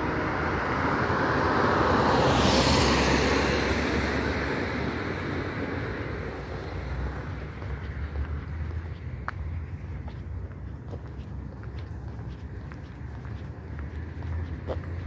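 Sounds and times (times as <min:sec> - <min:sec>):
car driving past: 0:00.0 - 0:08.8.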